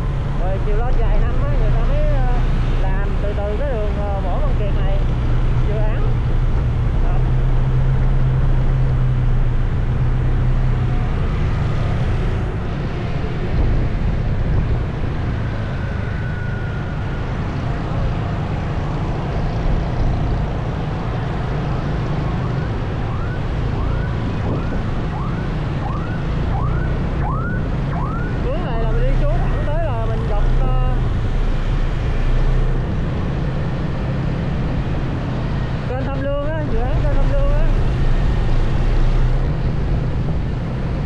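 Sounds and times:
road traffic rumble: 0.0 - 41.0
emergency siren yelping: 21.5 - 29.9.

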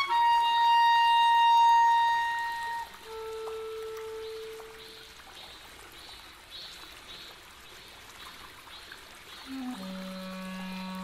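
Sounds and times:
clarinet notes: 0.0 - 5.0, 9.5 - 11.0.

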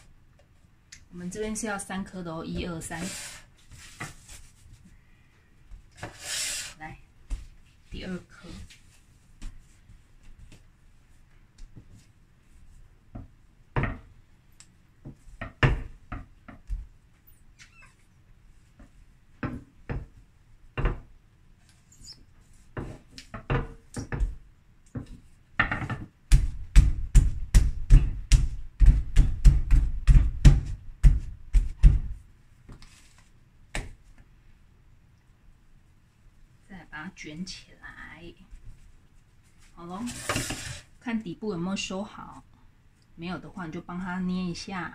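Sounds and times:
dough knocks and thuds: 13.2 - 14.1, 15.0 - 16.9, 18.8 - 21.1, 22.7 - 32.8
loud thumps on dough: 25.0 - 32.2.

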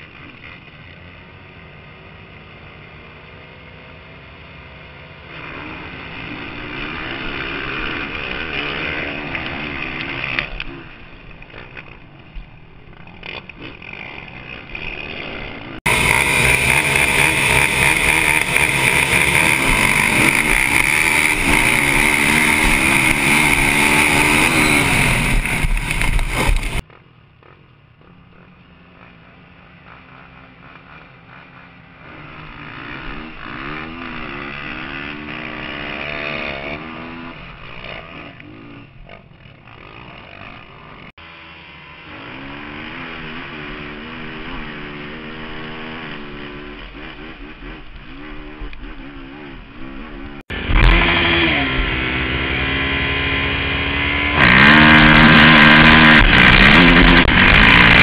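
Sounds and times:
quad engines revving: 0.0 - 58.0.

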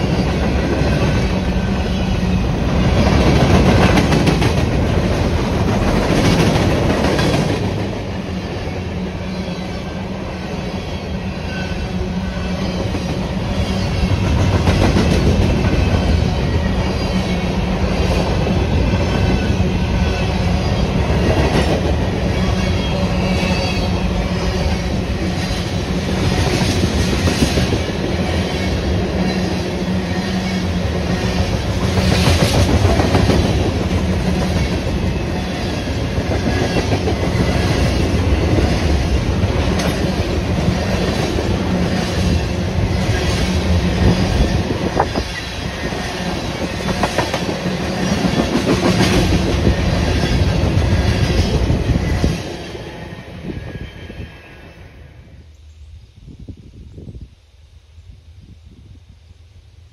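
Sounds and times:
freight train rumbling past: 0.0 - 59.9
clickety-clack over rail joints: 2.6 - 8.6, 12.7 - 17.4, 21.0 - 22.5, 25.2 - 52.8.

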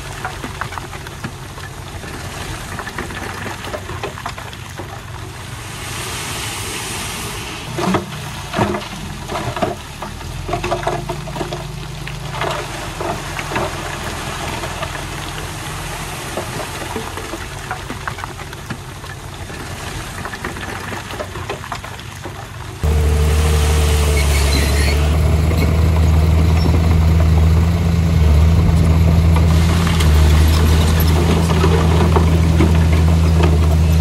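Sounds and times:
heavy diesel engine running: 22.4 - 34.0.

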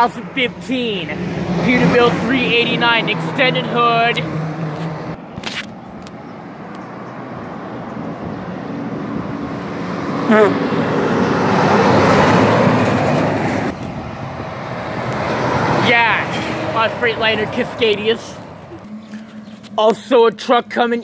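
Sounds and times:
diesel truck passing: 0.0 - 21.0.

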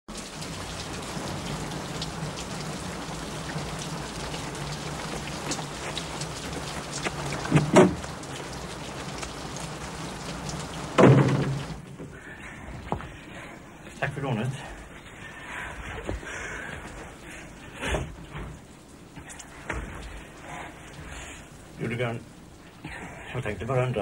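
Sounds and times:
heavy rain falling: 0.1 - 24.0
short loud knocks: 11.0 - 11.8.

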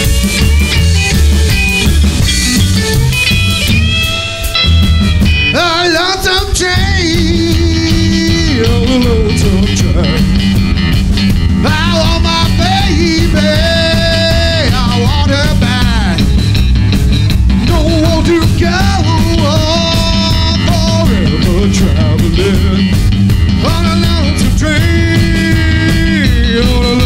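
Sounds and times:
drum kit: 0.0 - 27.0
electric guitar: 0.0 - 27.0
upright bass: 0.0 - 27.0
man singing: 5.4 - 10.6, 11.6 - 16.4, 17.6 - 27.0.

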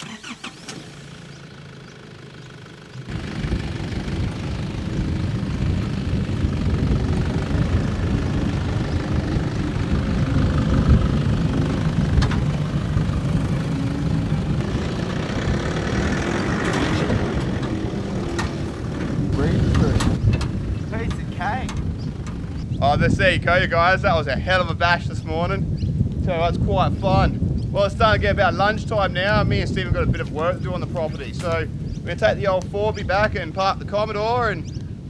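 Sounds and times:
truck engine labouring: 0.0 - 24.3.

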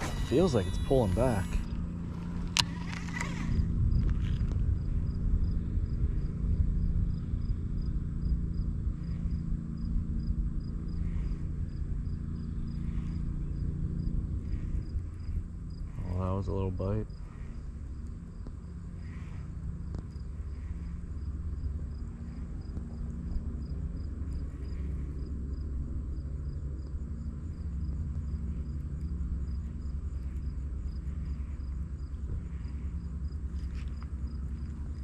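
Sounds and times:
insects chirping: 0.0 - 35.0
low steady rumble: 0.0 - 35.0.

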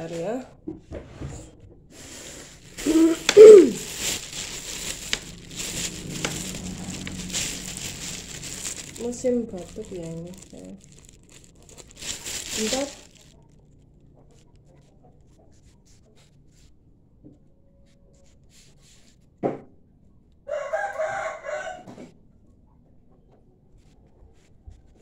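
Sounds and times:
rooster crowing: 20.5 - 22.0.

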